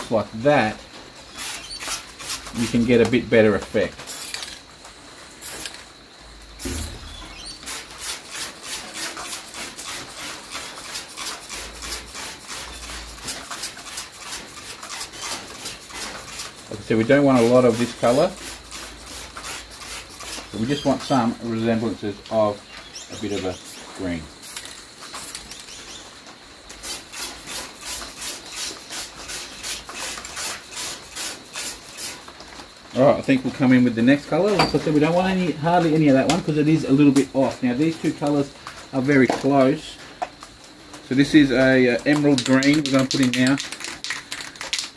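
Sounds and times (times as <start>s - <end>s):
spray bottle squirting water: 1.3s - 3.0s, 4.0s - 4.6s, 5.4s - 5.9s, 6.6s - 16.7s, 17.3s - 20.9s, 24.4s - 25.7s, 26.7s - 32.4s, 42.1s - 44.9s.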